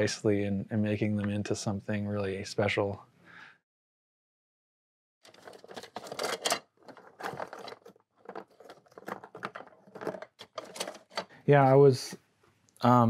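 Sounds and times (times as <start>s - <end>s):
plastic bag crinkling: 5.3s - 11.2s.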